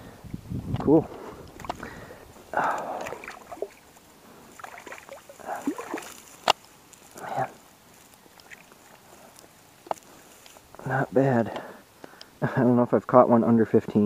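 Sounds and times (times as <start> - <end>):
hand splashing in water: 2.7 - 3.8, 4.6 - 6.2.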